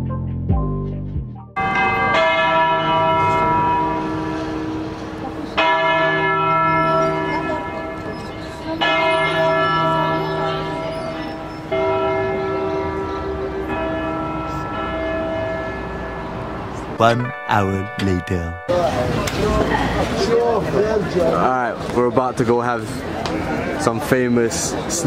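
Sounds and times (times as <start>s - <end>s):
background music: 0.0s - 1.7s, 17.0s - 19.0s
church bell tolling: 1.6s - 19.6s.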